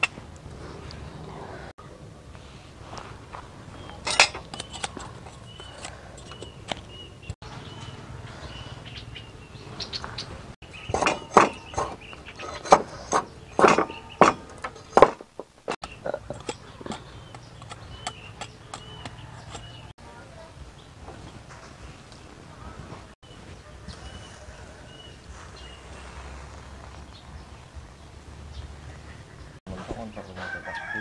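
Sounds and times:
small bird chirping: 3.7s - 15.0s, 15.8s - 19.9s, 23.2s - 30.4s
knife scraping bamboo: 3.8s - 7.0s, 10.9s - 19.9s.

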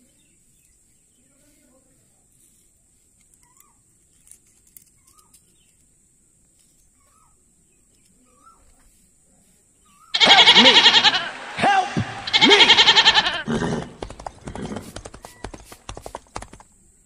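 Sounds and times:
farm animal bleating: 10.2s - 13.9s.

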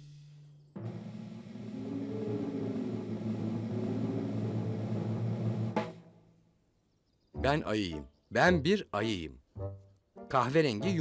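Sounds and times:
rising whine: 0.8s - 5.7s.

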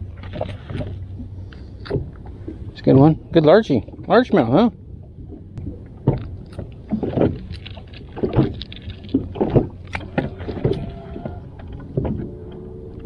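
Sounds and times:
water sloshing: 0.0s - 13.0s.

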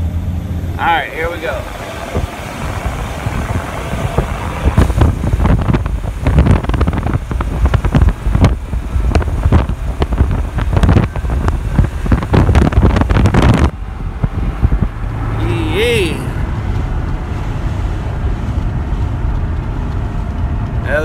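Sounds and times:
road and engine rumble: 0.0s - 21.0s
wind buffeting microphone: 1.6s - 15.4s.

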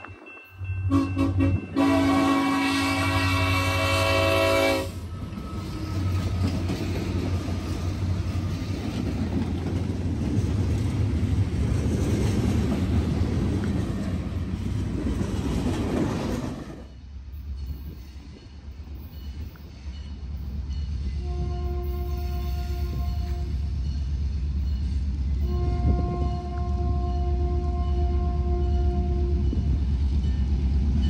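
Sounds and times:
freight train rolling past: 0.0s - 31.0s
locomotive air horn: 0.8s - 5.0s, 21.2s - 23.6s, 25.4s - 29.4s.

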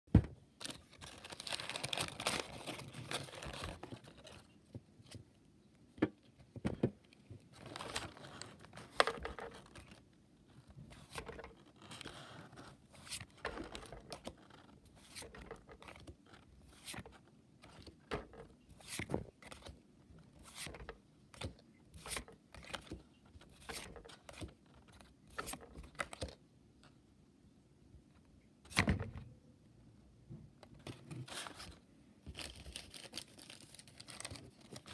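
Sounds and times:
paper crinkling: 0.6s - 5.2s, 7.5s - 19.8s, 30.8s - 34.9s.

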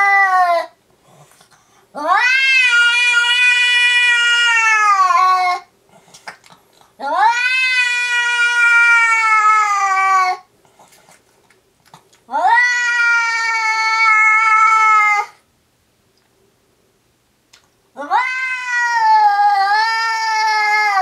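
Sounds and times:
cat yowling: 0.0s - 0.8s, 2.0s - 5.7s, 7.0s - 10.5s, 12.3s - 15.4s, 18.0s - 21.0s.

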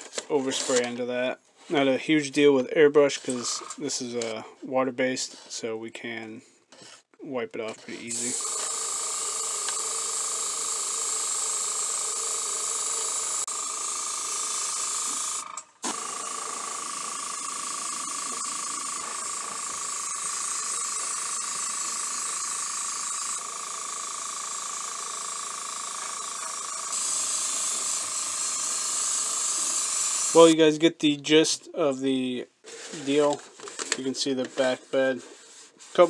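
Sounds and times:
airbrush hissing: 15.9s - 30.5s.

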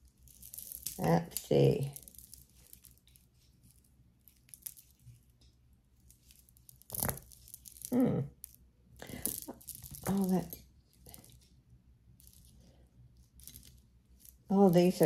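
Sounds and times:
packaging crinkles: 6.1s - 8.0s, 9.0s - 11.5s, 12.2s - 14.5s.

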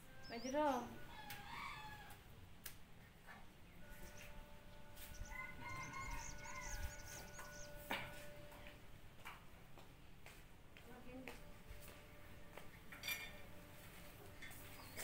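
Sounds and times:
rooster crowing: 1.0s - 2.2s, 5.0s - 7.6s.

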